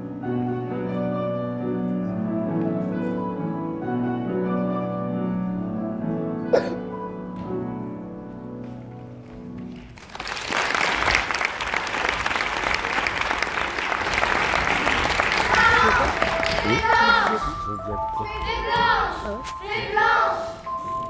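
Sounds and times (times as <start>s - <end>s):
instrumental music sustained notes: 0.0s - 9.8s, 14.5s - 21.0s
audience applause: 9.7s - 17.9s.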